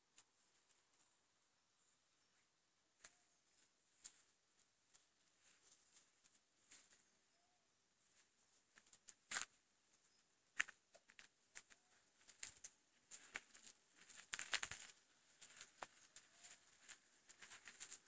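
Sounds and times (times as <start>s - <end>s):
soft clicks and rustles: 3.0s - 7.1s, 8.1s - 18.0s.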